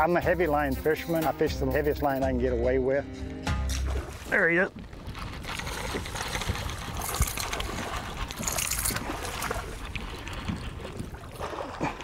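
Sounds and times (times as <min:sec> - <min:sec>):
fish splashing at water surface: 0:05.1 - 0:12.0.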